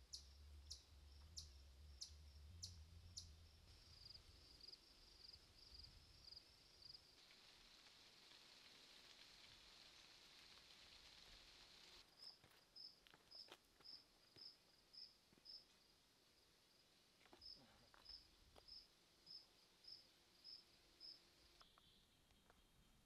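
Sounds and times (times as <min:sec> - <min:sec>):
cricket chirping: 0:00.0 - 0:07.2, 0:12.0 - 0:22.6
faint high insect hiss: 0:00.0 - 0:23.0.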